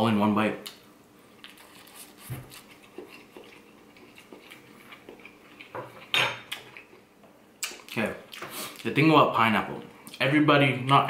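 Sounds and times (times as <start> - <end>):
quiet chewing: 1.4 - 8.9.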